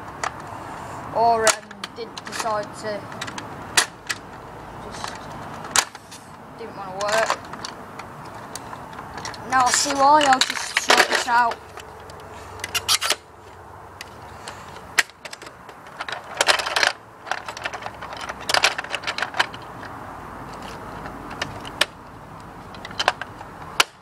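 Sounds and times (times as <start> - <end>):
plastic toy blaster clicks and rattles: 1.2 - 4.3, 6.8 - 8.6, 9.2 - 13.2, 15.0 - 19.9.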